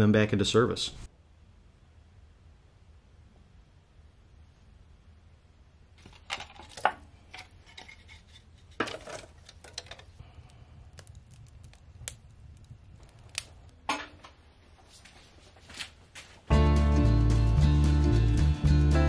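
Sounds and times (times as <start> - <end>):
low steady hum: 0.0 - 15.8
wood fire crackling and popping: 6.0 - 16.3.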